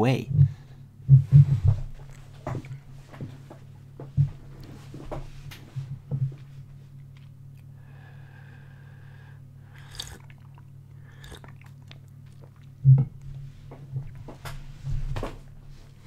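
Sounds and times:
low hum: 0:00.0 - 0:16.0
slurping tea: 0:09.7 - 0:11.9.

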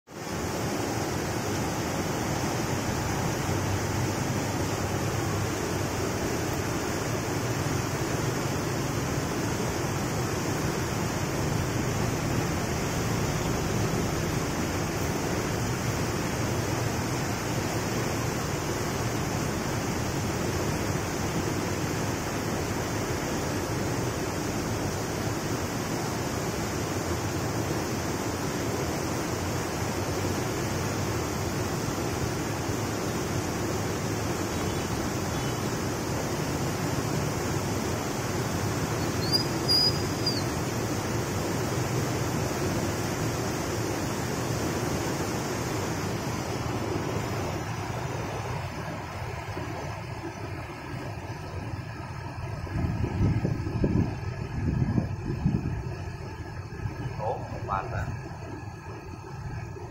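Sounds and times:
water rushing and churning: 0:00.1 - 0:59.9.

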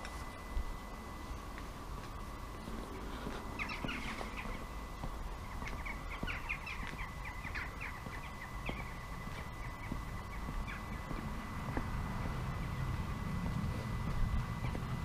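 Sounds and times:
steady low rumble: 0:00.0 - 0:15.0
small birds chirping: 0:03.3 - 0:15.0.

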